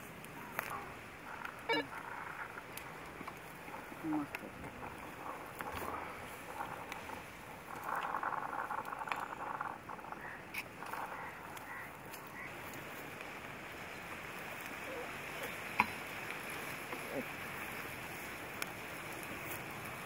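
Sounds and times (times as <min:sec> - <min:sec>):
harsh pulsing animal calls: 0:00.4 - 0:12.6
faint high chirps: 0:01.7 - 0:02.0.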